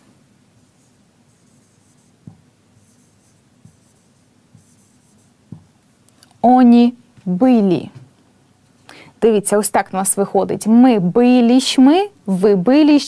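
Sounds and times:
marker scratching on whiteboard: 0.6 - 5.6.

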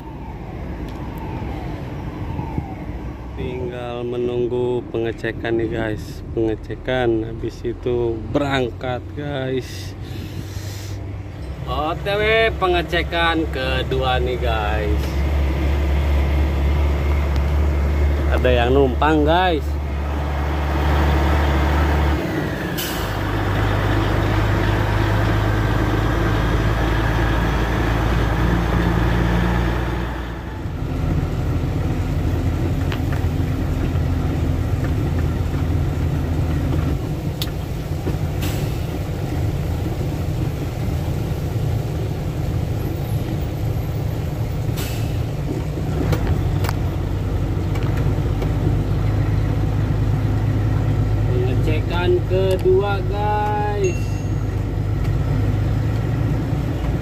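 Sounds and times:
truck diesel engine running: 9.9 - 57.0
air brake hisses: 10.1 - 11.0, 44.8 - 45.2.

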